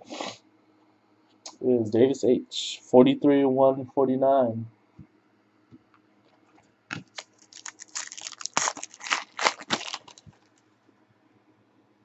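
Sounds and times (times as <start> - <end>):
foil wrapper crinkling: 6.9 - 10.6.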